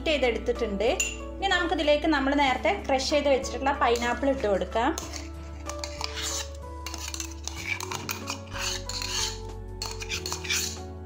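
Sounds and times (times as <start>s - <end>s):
soft background music: 0.0s - 11.0s
metal scraping and clinking: 5.0s - 10.9s.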